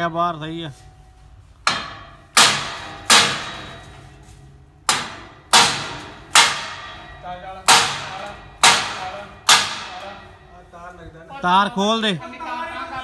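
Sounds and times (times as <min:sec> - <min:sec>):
hammer striking steel grill: 0:01.6 - 0:11.0.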